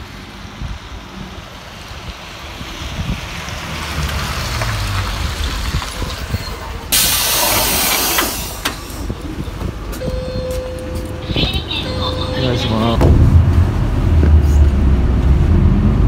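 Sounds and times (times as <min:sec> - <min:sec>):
bus engine running low: 0:00.0 - 0:16.0
compressed air hiss: 0:07.0 - 0:09.1.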